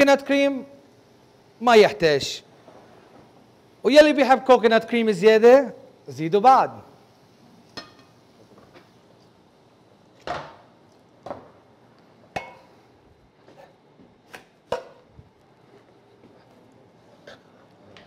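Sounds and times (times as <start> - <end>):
utensils knocking against pots: 12.4 - 12.7.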